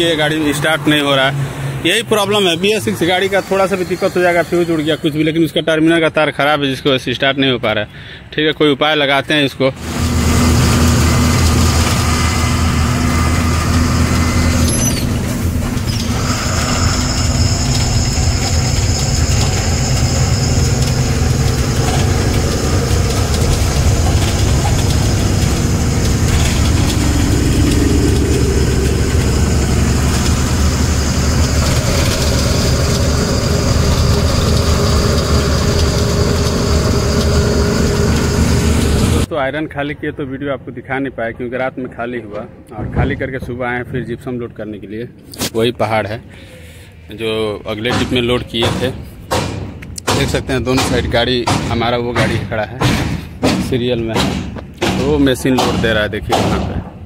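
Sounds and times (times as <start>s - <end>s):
truck engine drone: 0.0s - 5.8s, 9.7s - 39.3s
road noise: 0.0s - 57.0s.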